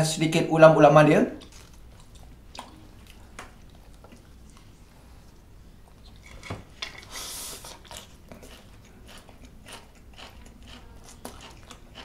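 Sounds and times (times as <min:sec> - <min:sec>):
chewing crunchy food: 0:01.4 - 0:04.8, 0:05.9 - 0:12.0.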